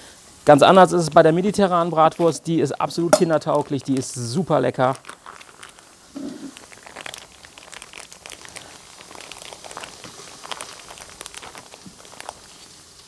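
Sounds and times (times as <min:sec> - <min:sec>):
vegetables sizzling on a griddle: 0:05.8 - 0:06.6, 0:08.2 - 0:13.0.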